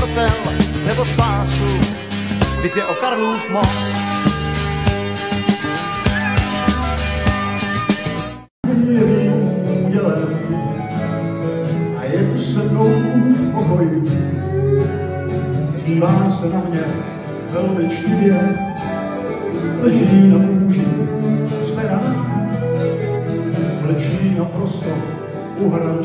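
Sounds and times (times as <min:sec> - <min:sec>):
acoustic guitars strummed: 0:00.0 - 0:03.0, 0:03.6 - 0:26.0
violin playing: 0:02.1 - 0:08.5, 0:10.3 - 0:16.0, 0:17.6 - 0:24.2.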